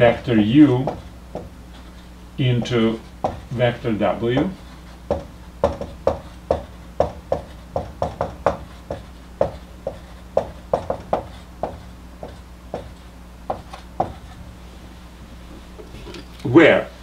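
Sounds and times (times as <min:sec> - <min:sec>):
marker tapping on whiteboard: 0:00.2 - 0:02.0, 0:02.6 - 0:03.6, 0:04.3 - 0:14.4.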